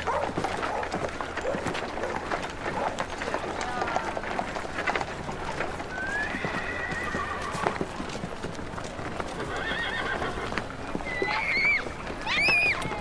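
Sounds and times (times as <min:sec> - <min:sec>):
horse hooves clopping: 0:00.0 - 0:13.0
horse whinnying: 0:05.9 - 0:07.8, 0:09.4 - 0:13.0.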